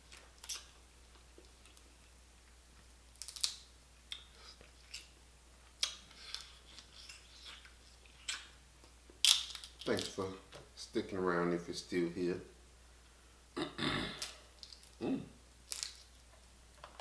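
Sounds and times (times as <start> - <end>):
crab shell cracking: 3.2 - 4.3, 9.2 - 10.2, 15.7 - 16.2
man chewing: 4.1 - 9.7.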